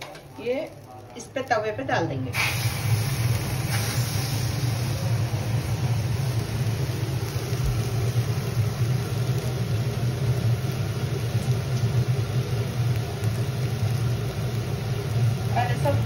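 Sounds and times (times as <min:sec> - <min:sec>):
low mechanical hum: 0:00.0 - 0:16.0
faint hiss: 0:02.3 - 0:05.8.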